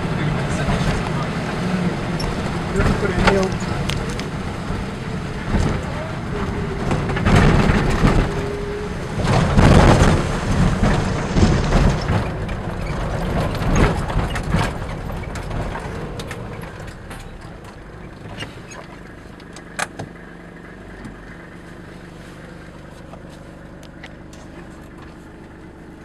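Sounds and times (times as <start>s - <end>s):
car rumbling on road: 0.0s - 26.0s
short knocks and rattles: 0.6s - 20.2s.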